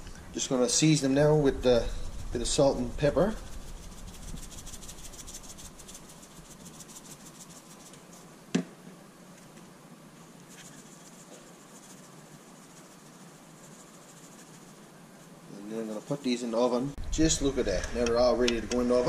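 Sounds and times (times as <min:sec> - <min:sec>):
shakers rattling: 0:03.4 - 0:08.0.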